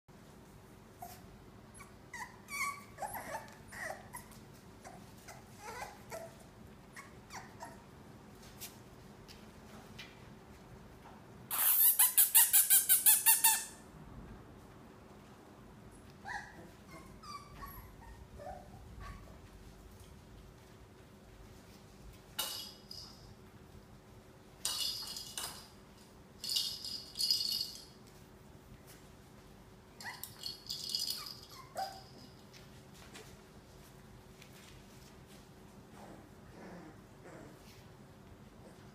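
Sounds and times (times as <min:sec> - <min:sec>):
puppies whimpering and yipping: 0:01.0 - 0:07.9, 0:16.2 - 0:19.4, 0:31.3 - 0:32.2
metallic jingling and rattling: 0:22.4 - 0:23.4, 0:24.6 - 0:25.8, 0:26.4 - 0:28.0, 0:30.0 - 0:32.4.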